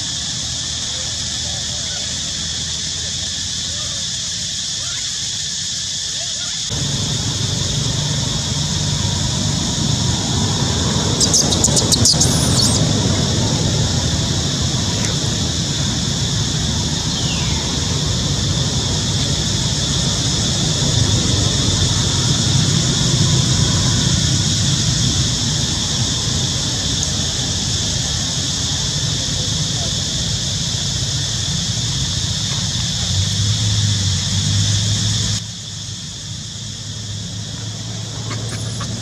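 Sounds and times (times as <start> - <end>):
distant road traffic rumble: 0.0 - 39.0
short falling chirp: 11.2 - 12.8.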